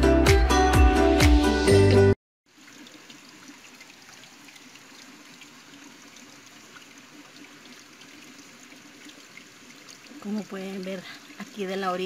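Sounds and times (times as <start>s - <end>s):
water trickling and dripping: 2.5s - 12.0s.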